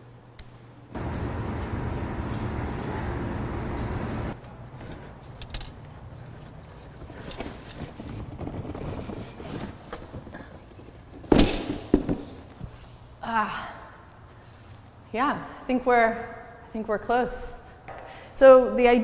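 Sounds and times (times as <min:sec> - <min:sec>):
low outdoor rumble: 0:00.9 - 0:04.8
box thumping on concrete floor: 0:11.2 - 0:12.4.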